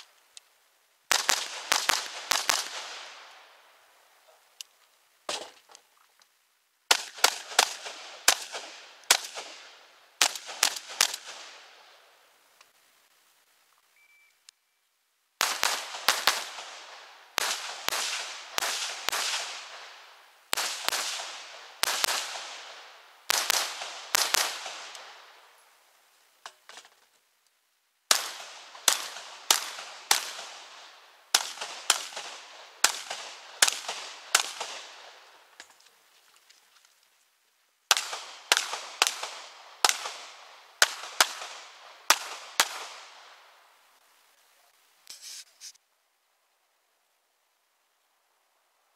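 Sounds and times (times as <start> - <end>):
rifle firing rapid bursts: 1.1 - 3.0.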